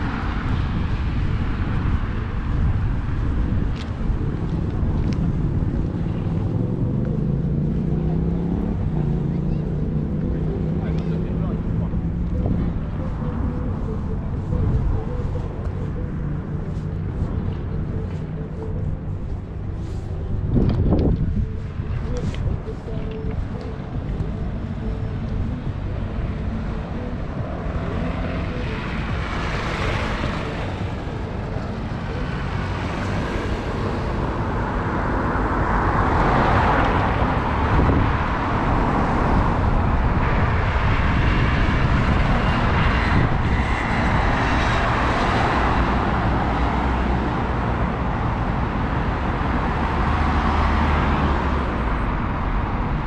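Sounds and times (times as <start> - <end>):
cars passing: 0.0 - 53.0
low traffic rumble: 0.0 - 53.0.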